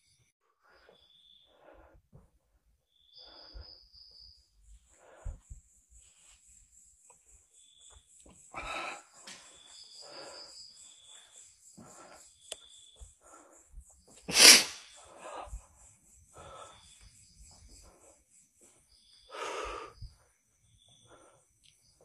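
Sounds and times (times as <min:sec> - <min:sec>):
person breathing: 0:00.6 - 0:02.3, 0:03.1 - 0:04.0, 0:04.7 - 0:06.4, 0:08.5 - 0:17.2, 0:19.2 - 0:20.2, 0:20.9 - 0:21.6
sharp burst of breath: 0:14.3 - 0:15.5.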